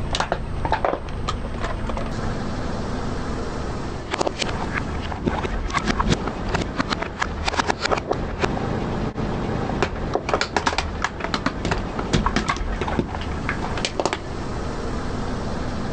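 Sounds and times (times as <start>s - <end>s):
car low rumble: 0.0s - 15.9s
plastic toys cracking under tyre: 9.8s - 14.2s.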